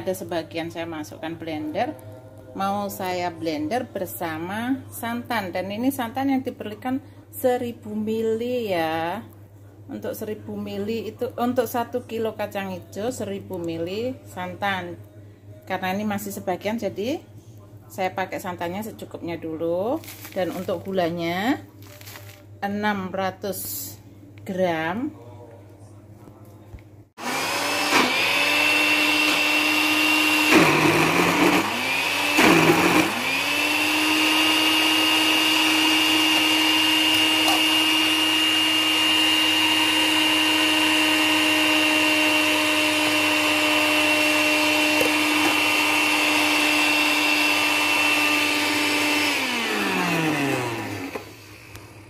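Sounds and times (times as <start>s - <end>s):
blender motor running: 27.2s - 51.7s.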